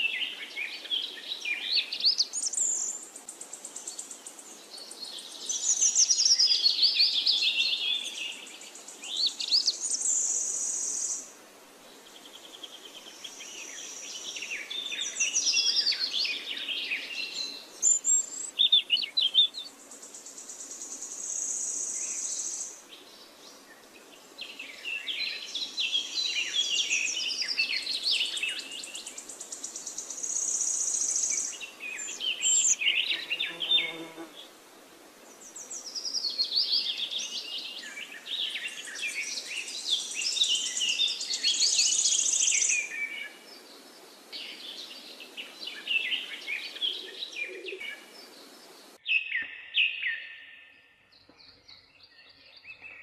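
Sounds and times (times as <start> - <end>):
birds chirping and trilling: 12.0 - 34.5, 35.2 - 53.0.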